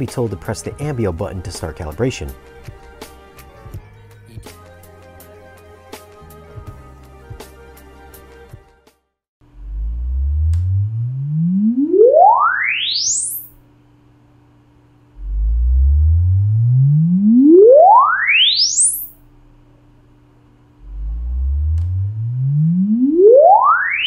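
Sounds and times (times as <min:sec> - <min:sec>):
rising sine sweep test tones: 0:09.5 - 0:13.6, 0:15.1 - 0:19.2, 0:20.8 - 0:24.0.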